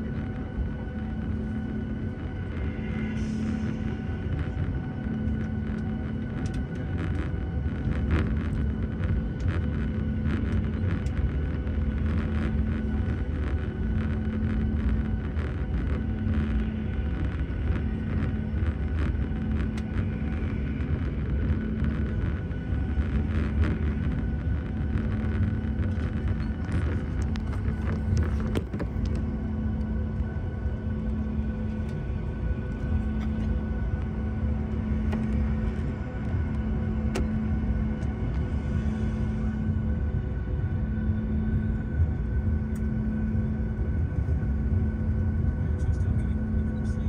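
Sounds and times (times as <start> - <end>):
airliner engine rumble in cabin: 0.0 - 47.0.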